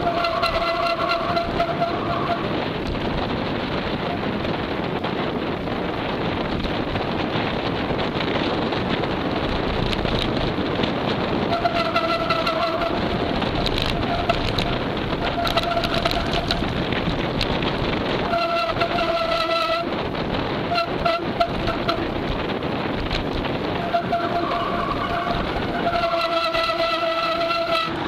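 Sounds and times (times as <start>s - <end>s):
bike brakes squealing: 0.0s - 2.5s, 11.5s - 13.1s, 13.7s - 16.6s, 18.3s - 19.9s, 23.8s - 28.0s
wind: 0.0s - 28.0s.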